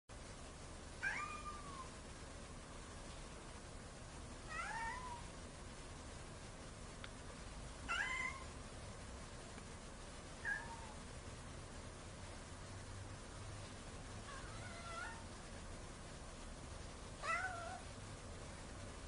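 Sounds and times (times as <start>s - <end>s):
cat meowing: 1.0s - 1.9s, 4.5s - 5.3s, 7.9s - 8.5s, 10.4s - 11.0s, 14.2s - 15.3s, 17.2s - 17.9s.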